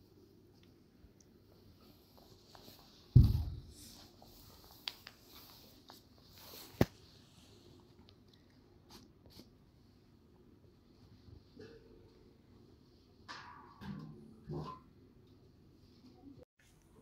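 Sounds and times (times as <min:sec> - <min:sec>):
heavy thump: 0:03.1 - 0:03.8.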